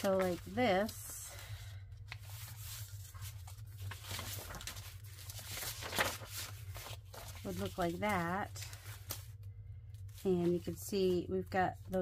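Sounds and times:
paper rustling and sliding: 0.0 - 9.4.

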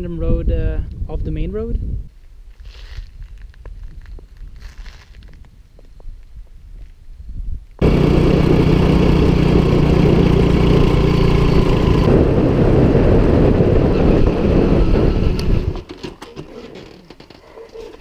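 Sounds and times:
wind rush: 2.9 - 15.9
small motorbike engine running: 7.8 - 15.8.

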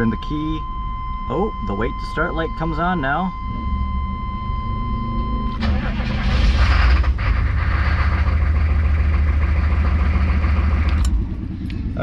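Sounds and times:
electronic warning tone: 0.0 - 6.6
diesel engine cranking and idling: 0.0 - 12.0.

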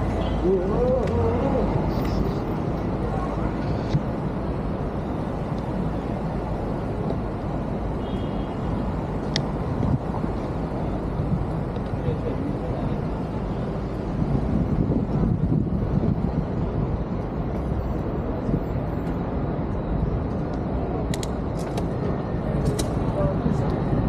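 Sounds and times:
air over camera: 0.0 - 24.0
passing traffic rushing: 0.0 - 24.0
sharp click: 20.5 - 21.9.

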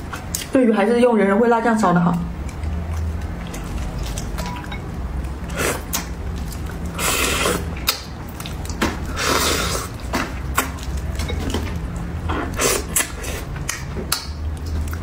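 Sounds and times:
person slurping and chewing: 5.2 - 11.1, 12.1 - 15.0.

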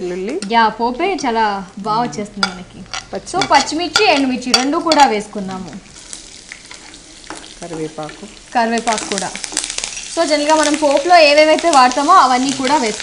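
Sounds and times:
spices sizzling in hot oil: 0.0 - 13.0
person talking: 1.8 - 2.6.

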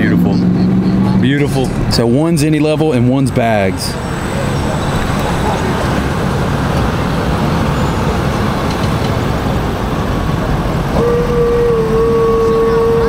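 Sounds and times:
truck engine rumbling: 0.0 - 13.0
truck horn blast: 10.9 - 13.0.

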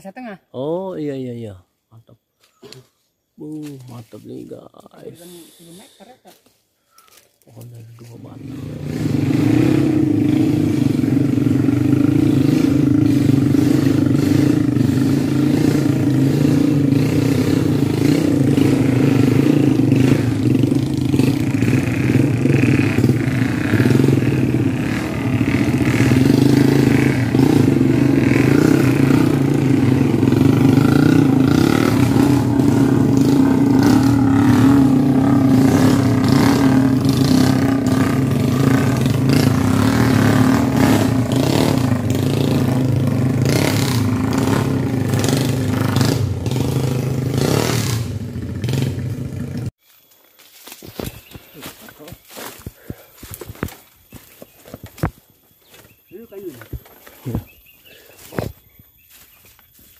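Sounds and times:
motorcycle engine running: 8.0 - 49.7.

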